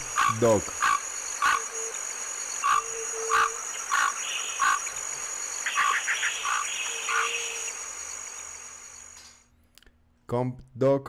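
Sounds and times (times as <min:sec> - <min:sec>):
duck calling: 0:00.0 - 0:01.7, 0:02.6 - 0:04.9
steady high-pitched whine: 0:00.0 - 0:09.5.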